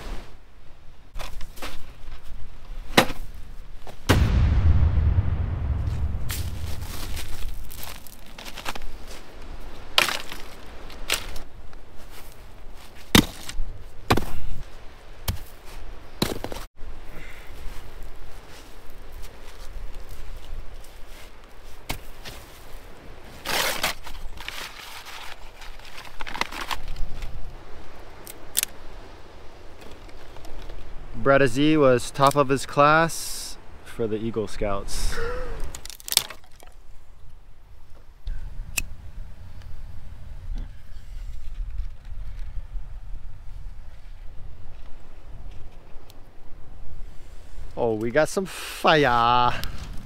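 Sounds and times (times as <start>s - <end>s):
small fire crackling: 3.9s - 11.8s, 38.2s - 46.4s, 48.8s - 50.0s
wind buffeting microphone: 4.2s - 9.8s, 37.7s - 47.8s.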